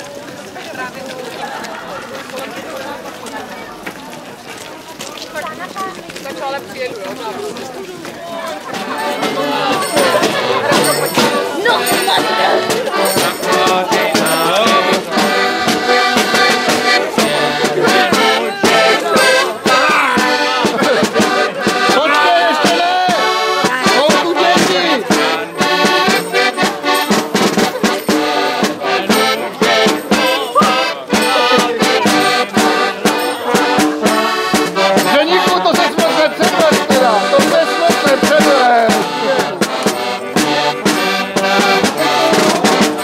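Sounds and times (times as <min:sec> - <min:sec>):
accordion playing folk tune: 0:04.6 - 0:43.0.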